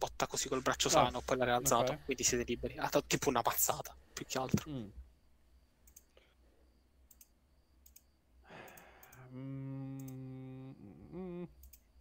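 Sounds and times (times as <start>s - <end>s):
faint computer clicks: 5.8s - 6.3s, 7.0s - 9.3s, 11.6s - 11.9s
breath: 8.4s - 9.3s
man holding a drawn-out vowel: 9.3s - 11.6s.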